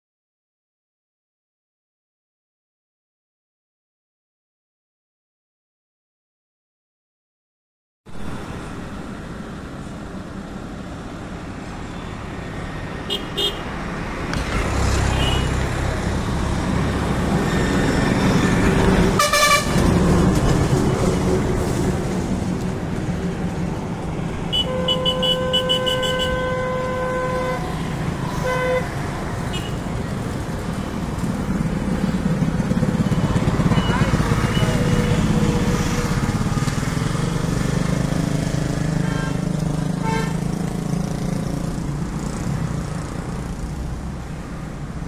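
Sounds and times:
roadside traffic: 0:08.1 - 0:45.0
vehicle horn: 0:13.1 - 0:13.7, 0:15.0 - 0:15.6, 0:19.1 - 0:19.8, 0:24.5 - 0:29.8, 0:40.0 - 0:40.5.

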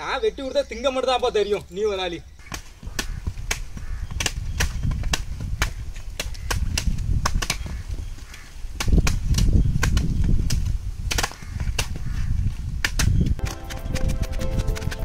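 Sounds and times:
knives chopping: 0:12.8 - 0:15.0
music: 0:13.4 - 0:15.0.

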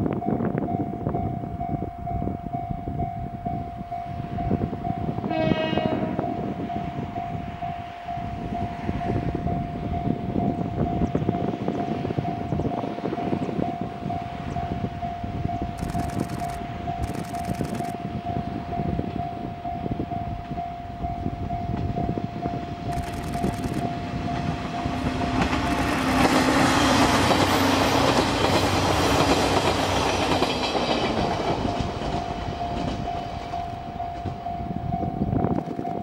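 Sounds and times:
diesel train engine passing: 0:00.0 - 0:36.0
repeating warning tone: 0:13.2 - 0:26.0
train wheel clatter: 0:23.0 - 0:34.4.

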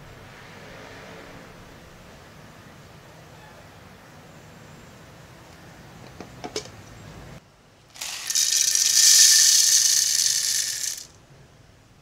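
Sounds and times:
coffee beans pouring into hopper: 0:08.0 - 0:11.1.

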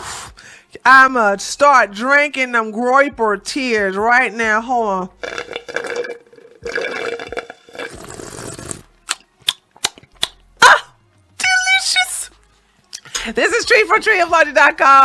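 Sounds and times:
slurping through a straw: 0:05.2 - 0:08.9.

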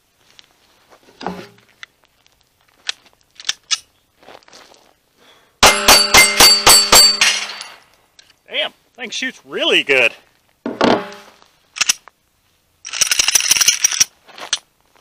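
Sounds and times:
steel plates ringing: 0:05.6 - 0:07.8.

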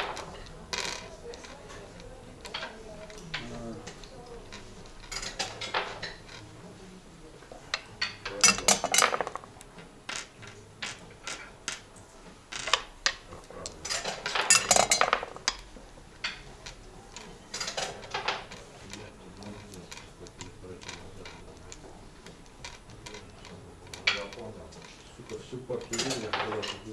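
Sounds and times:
dice clattering on board: 0:08.4 - 0:09.5, 0:25.9 - 0:26.8.

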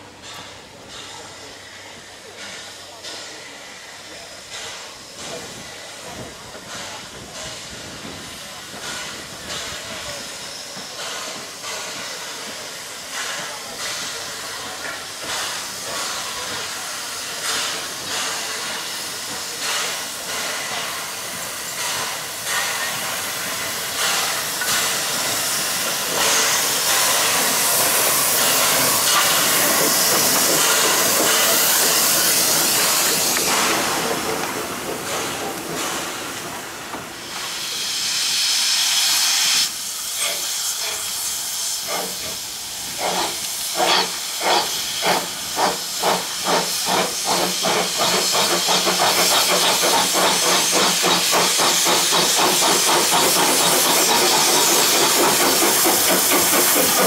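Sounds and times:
loud hiss of steam: 0:00.0 - 0:57.0
steam locomotive exhaust beats: 0:00.0 - 0:57.0.

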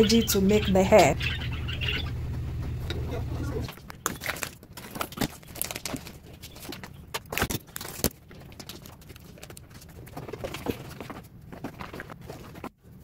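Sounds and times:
plastic sachet crinkling: 0:04.2 - 0:10.0.

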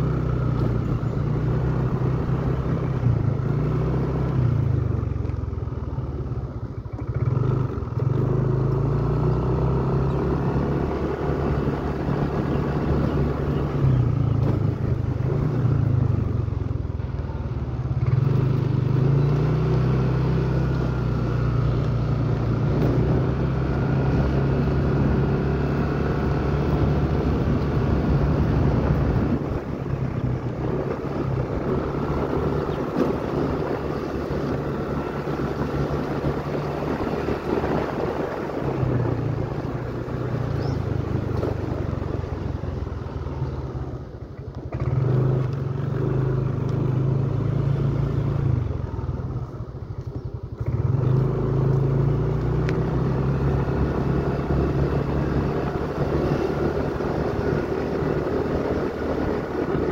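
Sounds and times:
road noise: 0:00.0 - 0:59.9
vehicle engine running: 0:00.0 - 0:59.9.

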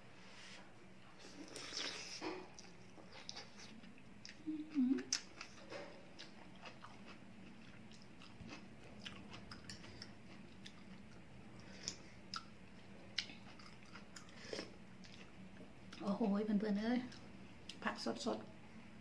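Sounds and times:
person chewing wetly: 0:01.4 - 0:16.0.

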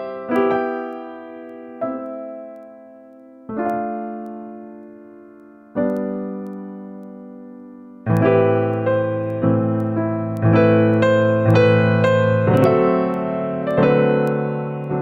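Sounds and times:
slow piano chords: 0:00.0 - 0:15.0.

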